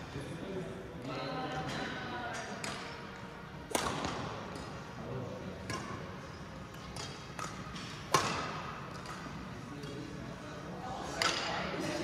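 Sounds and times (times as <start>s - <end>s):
racket hitting shuttlecock: 3.6s - 4.8s, 5.6s - 6.0s, 6.7s - 10.0s, 11.2s - 11.5s.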